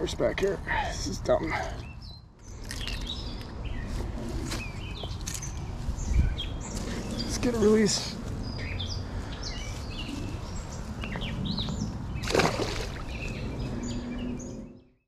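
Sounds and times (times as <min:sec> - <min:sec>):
birds chirping: 0:00.0 - 0:15.0
fish splash in water: 0:12.2 - 0:13.2.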